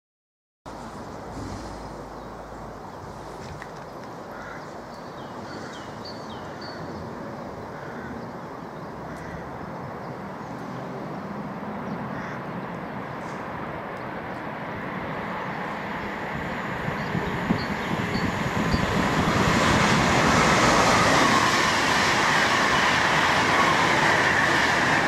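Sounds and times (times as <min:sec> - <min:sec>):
distant train rushing: 0:00.7 - 0:25.0
wind: 0:00.7 - 0:25.0
birds chirping: 0:15.3 - 0:20.4.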